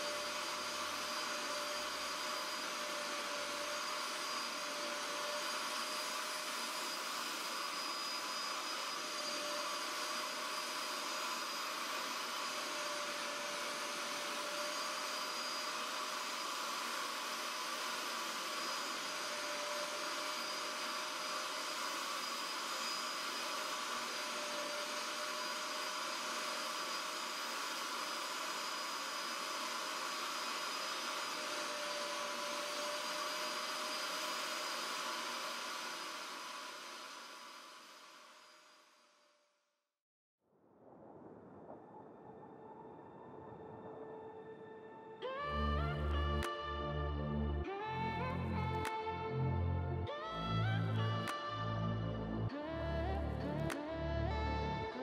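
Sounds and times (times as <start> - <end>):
spot cleaner suction motor whirring: 0.0 - 39.0.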